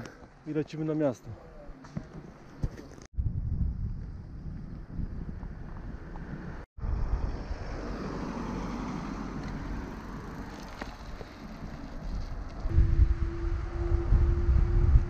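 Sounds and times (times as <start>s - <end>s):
wind rumble on microphone: 3.2s - 8.2s, 12.0s - 15.0s.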